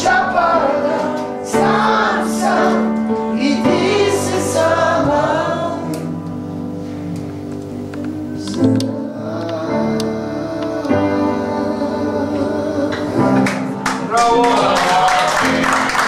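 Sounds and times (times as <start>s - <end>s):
men and women singing together: 0.0s - 6.3s, 8.0s - 13.8s.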